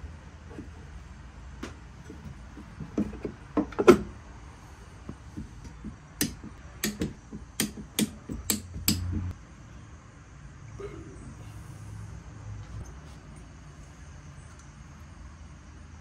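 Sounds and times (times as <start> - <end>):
tool clunking against engine block: 1.6 - 4.1
tools knocking on metal: 5.3 - 9.3.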